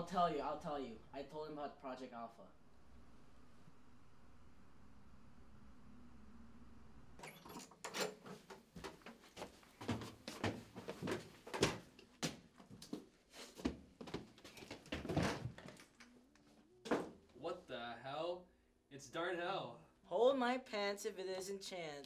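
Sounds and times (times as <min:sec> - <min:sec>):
low room hum: 0:00.0 - 0:07.2
hurried footsteps: 0:08.2 - 0:15.8.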